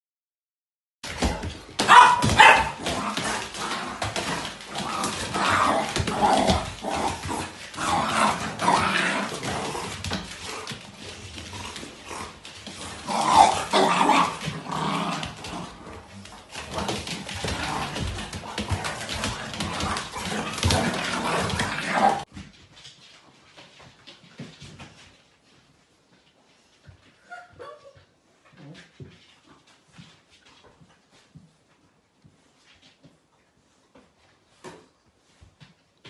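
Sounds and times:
dogs barking: 1.8 - 2.8.

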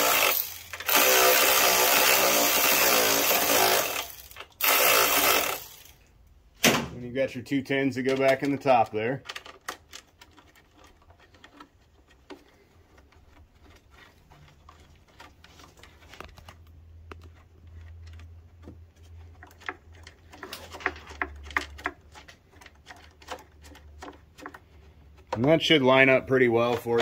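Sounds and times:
clicks and taps of small parts handled: 8.0 - 13.8.

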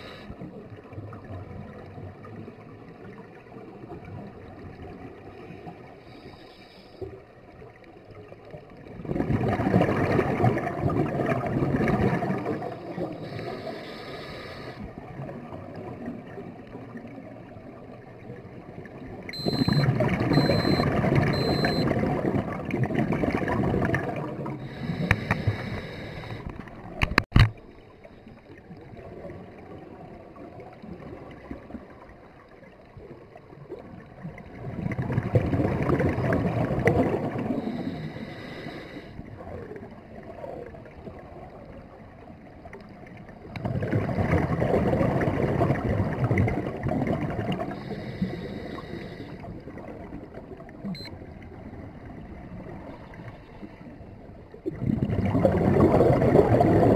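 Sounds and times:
underwater exhalation bubbles: 9.0 - 13.1, 19.4 - 25.6, 34.6 - 37.9, 43.4 - 47.9, 54.6 - 56.9.

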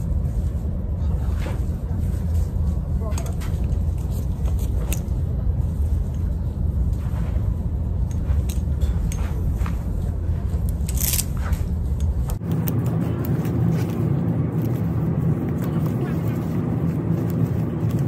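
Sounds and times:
steady low rumble: 0.0 - 18.0
clothes hangers clicking and scraping: 10.4 - 12.4.

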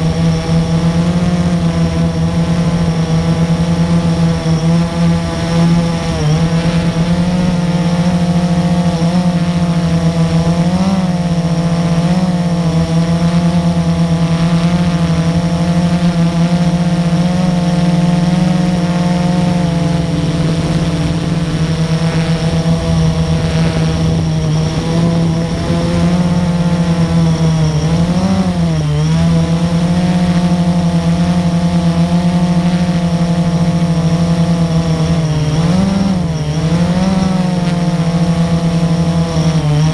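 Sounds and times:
quadcopter propellers buzzing: 0.0 - 39.9.

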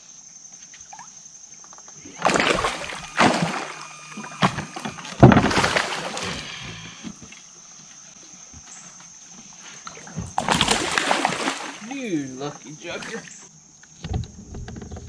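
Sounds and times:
water splashing and sloshing: 2.2 - 7.5, 10.0 - 12.1.

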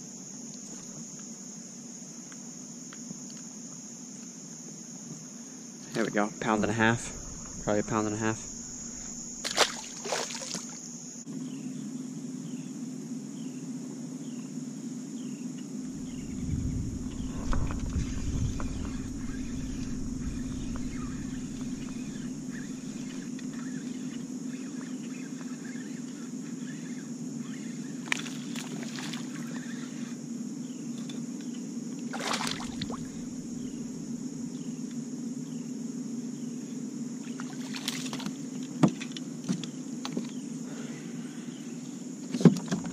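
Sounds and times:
insect buzz: 0.0 - 42.9
low rumble: 6.3 - 9.5, 15.9 - 23.3, 32.7 - 34.6
trolling motor humming: 6.3 - 10.5, 15.9 - 24.2, 32.3 - 34.7.

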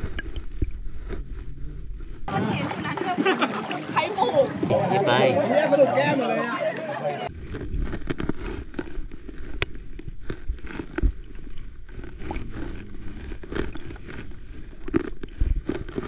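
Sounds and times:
muffled low rumble: 0.0 - 2.6
sharp clicks and crackles: 7.3 - 16.0.

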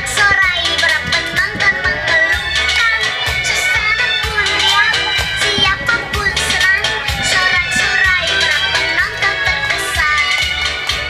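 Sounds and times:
children singing: 0.0 - 10.8
children's song with steady beat: 0.0 - 11.0.

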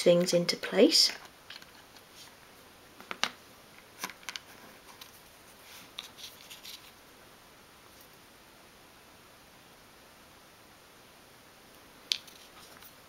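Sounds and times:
small clicks and rustles of cards: 1.1 - 2.1, 3.0 - 5.2, 5.8 - 7.0, 12.1 - 13.0.

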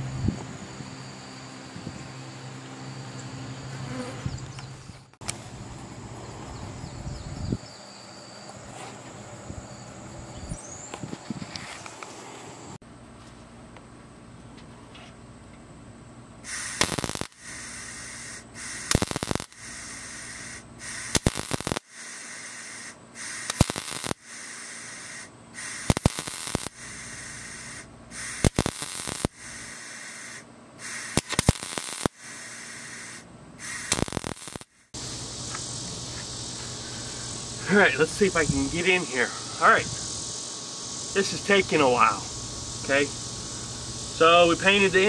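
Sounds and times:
welder crackling welds: 16.4 - 36.7.

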